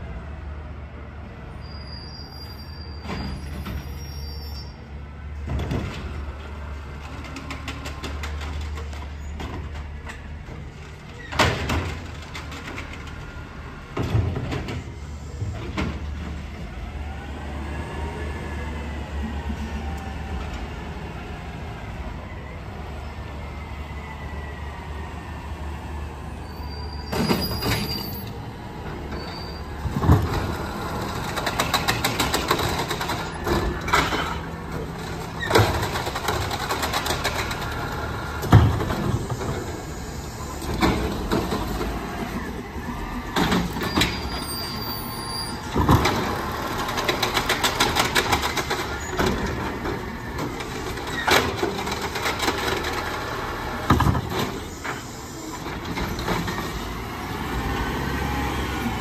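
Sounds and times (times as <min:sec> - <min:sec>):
cart rattling: 0:29.2 - 0:39.2.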